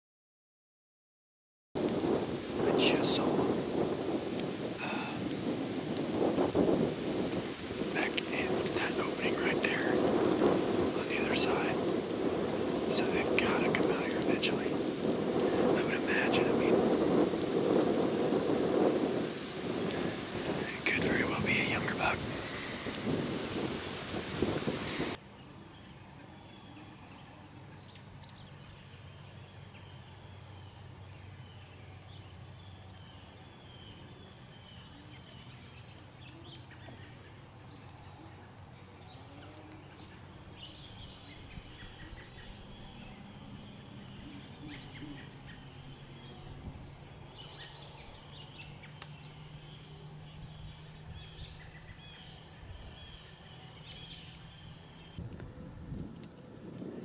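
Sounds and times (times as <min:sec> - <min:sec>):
faint bird chirps and calls: 0:08.0 - 0:10.0, 0:12.9 - 0:14.8, 0:15.6 - 0:16.7, 0:20.6 - 0:22.8, 0:24.9 - 0:55.2.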